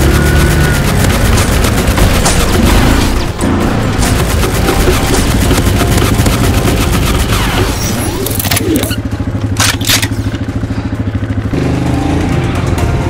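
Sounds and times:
atv engine idling: 8.8 - 13.0.

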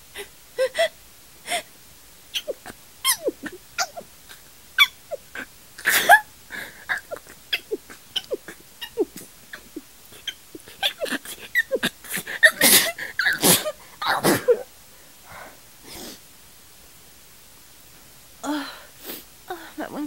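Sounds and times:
woman stifling sneezes: 10.9 - 14.7.

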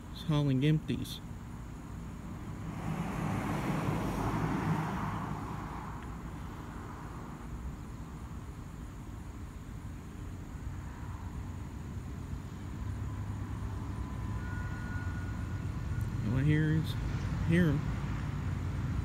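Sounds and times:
vehicle passing by: 2.3 - 7.6.

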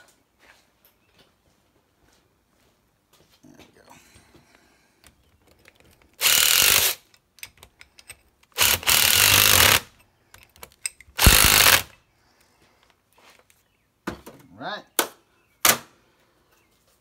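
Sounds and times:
cordless ratchet tool running: 6.2 - 7.0, 8.6 - 9.9, 11.2 - 11.9.

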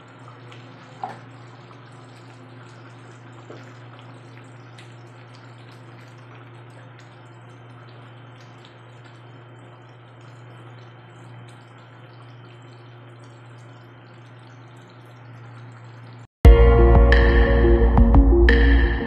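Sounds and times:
sauce simmering and bubbling: 0.0 - 16.3
steady low hum: 15.6 - 19.0.

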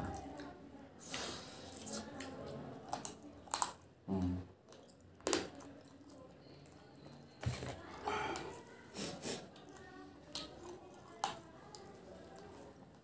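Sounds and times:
chewing and lip smacks: 0.1 - 3.9, 4.6 - 7.2, 9.5 - 13.0.

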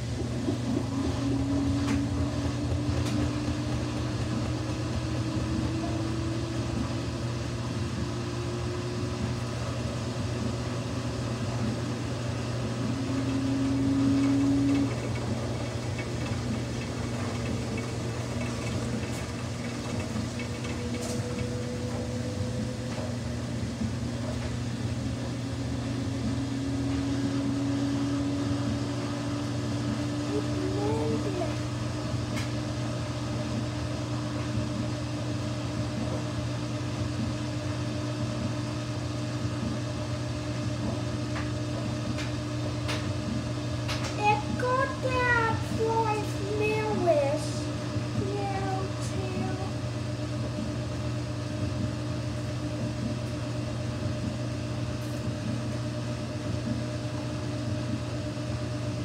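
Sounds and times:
rising drum tone: 0.0 - 8.8
washing machine motor hum: 0.0 - 59.0.

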